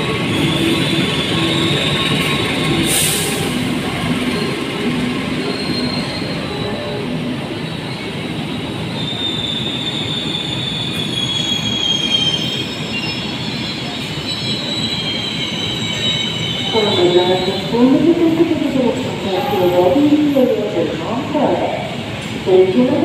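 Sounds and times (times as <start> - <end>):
train rumbling: 0.0 - 23.0
high wheel squeal: 0.2 - 17.7.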